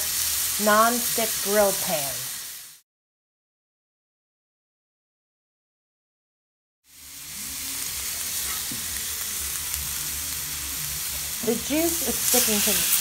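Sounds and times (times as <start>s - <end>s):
steak sizzling in pan: 0.0s - 2.8s, 6.9s - 13.0s.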